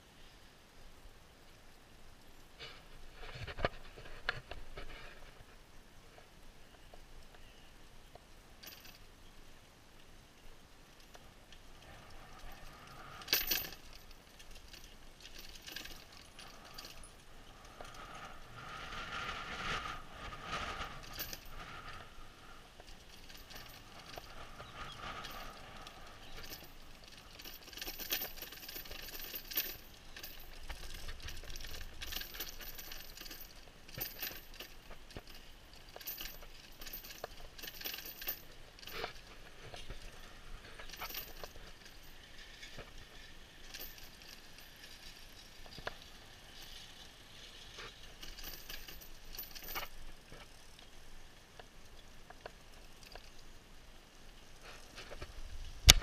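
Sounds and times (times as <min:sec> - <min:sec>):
road and wind noise: 0:05.6 - 0:56.0
bicycle rattling and clinking: 0:08.6 - 0:09.0, 0:12.4 - 0:19.8, 0:20.4 - 0:22.0, 0:22.6 - 0:50.8.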